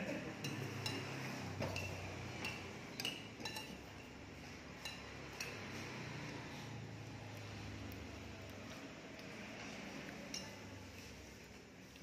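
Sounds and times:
fork clinking against a plate: 0:00.2 - 0:04.2, 0:04.8 - 0:05.8, 0:10.2 - 0:11.1.

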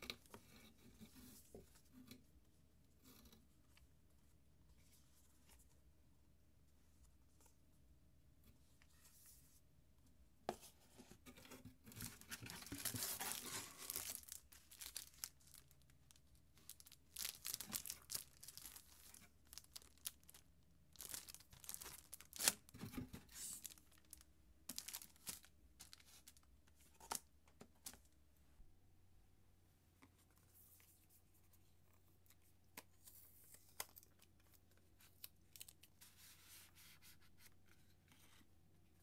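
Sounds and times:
packaging crinkling and rustling: 0:11.9 - 0:27.2.

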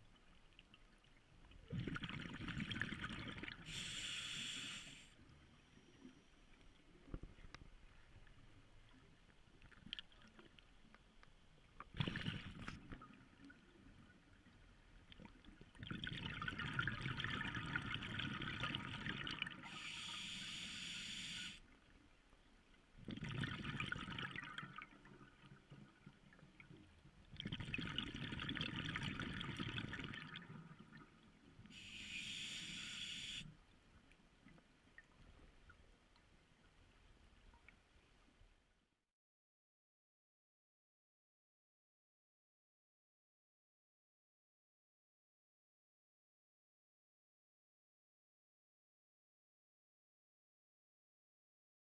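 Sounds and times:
diver breathing through regulator: 0:03.6 - 0:05.2, 0:19.6 - 0:21.6, 0:31.7 - 0:33.5.

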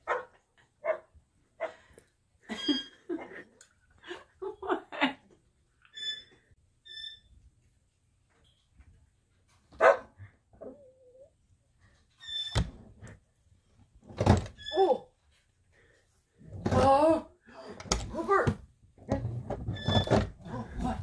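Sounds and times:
dog barking: 0:00.0 - 0:01.8, 0:09.8 - 0:10.2.

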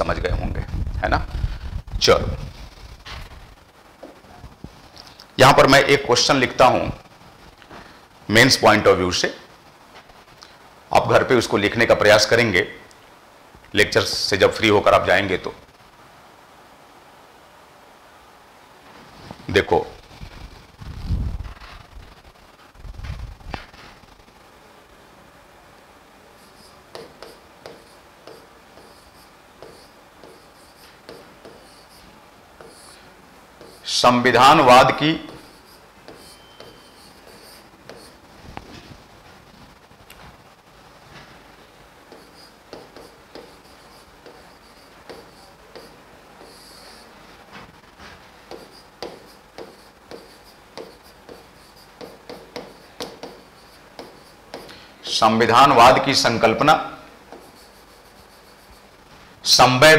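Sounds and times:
chalk tapping on blackboard: 0:26.4 - 0:33.0, 0:33.6 - 0:34.0, 0:34.6 - 0:38.2, 0:42.1 - 0:47.1, 0:48.4 - 0:55.2, 0:57.2 - 0:58.9
chalk scratching on blackboard: 0:26.4 - 0:38.2, 0:42.1 - 0:47.2, 0:48.1 - 0:55.2, 0:57.3 - 0:59.0.

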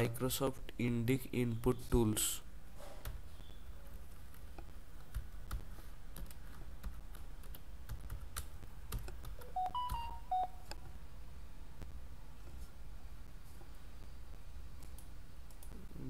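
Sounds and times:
low steady hum: 0:00.0 - 0:16.0
short electronic beeps: 0:09.6 - 0:10.6.

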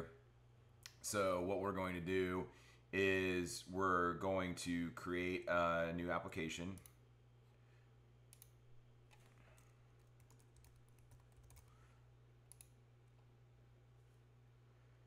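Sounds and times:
low steady hum: 0:00.0 - 0:15.0
typing on computer keyboard: 0:09.1 - 0:11.7.

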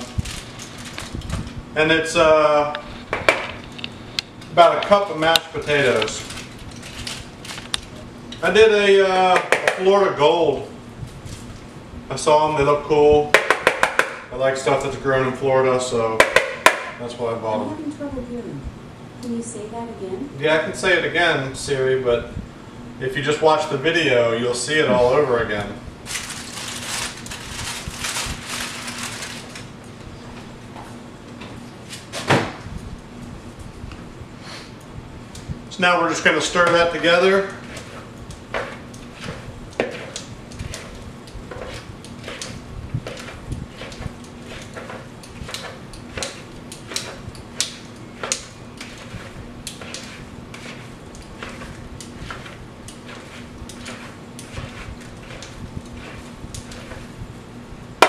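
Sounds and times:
faint steady hum: 0:00.0 - 0:58.0
utensil scraping in a bowl: 0:36.1 - 0:57.3.

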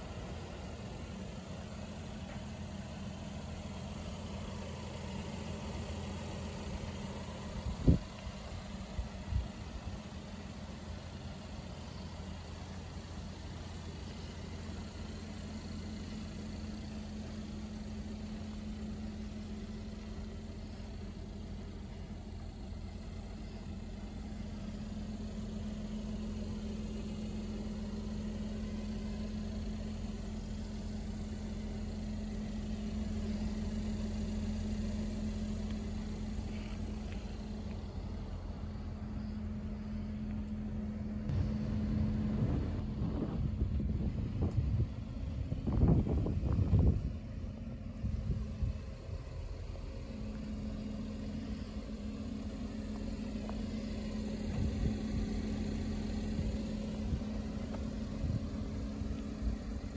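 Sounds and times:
car engine idling: 0:00.0 - 0:59.9
wind buffeting microphone: 0:41.4 - 0:48.8.

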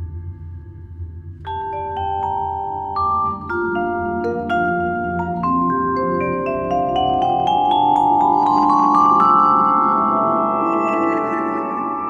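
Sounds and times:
vibraphone struck with mallets: 0:01.4 - 0:10.5.

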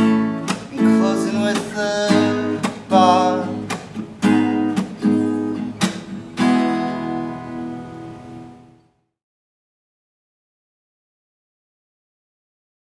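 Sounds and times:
acoustic guitar strumming chords: 0:00.0 - 0:09.0.

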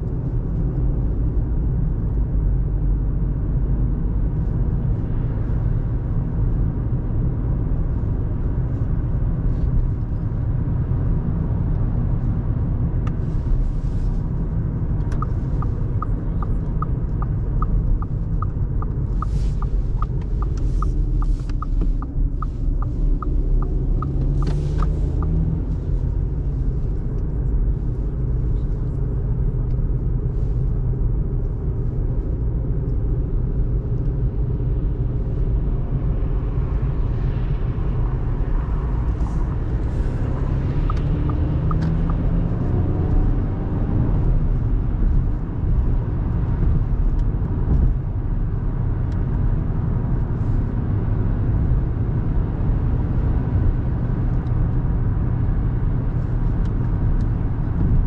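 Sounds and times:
car engine and tyre rumble: 0:00.0 - 0:58.0
regular ticking: 0:15.2 - 0:25.3.

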